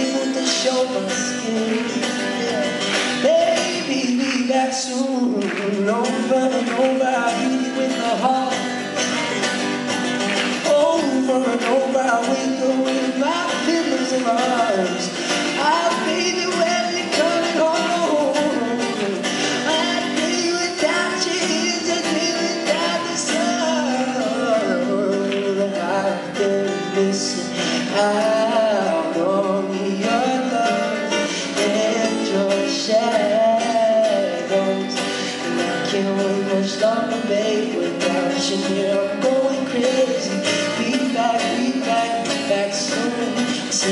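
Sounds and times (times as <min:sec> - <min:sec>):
man singing: 0:00.0 - 0:43.9
strummed acoustic guitar: 0:00.0 - 0:43.9.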